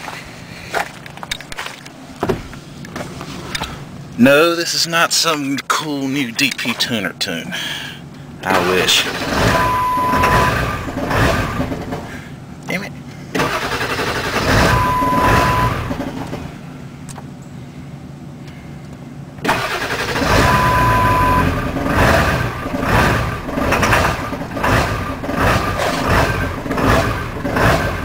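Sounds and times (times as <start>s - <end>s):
diesel engine starting: 7.6s - 12.5s, 13.2s - 17.1s, 19.4s - 28.0s
steady beep: 9.4s - 10.7s, 14.6s - 15.8s, 20.3s - 21.6s.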